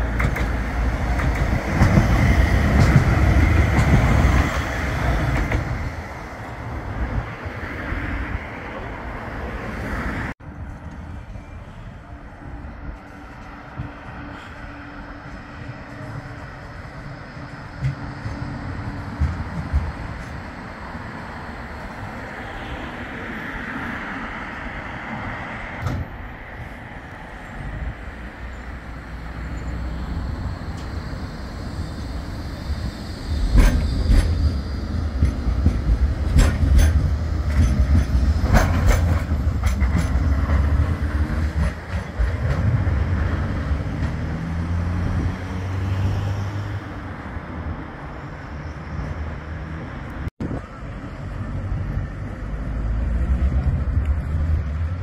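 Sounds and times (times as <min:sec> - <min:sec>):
sharp clicks of tram wheels: 0:00.0 - 0:06.2, 0:15.6 - 0:21.1, 0:29.0 - 0:45.3
tram rumbling past: 0:00.0 - 0:55.0.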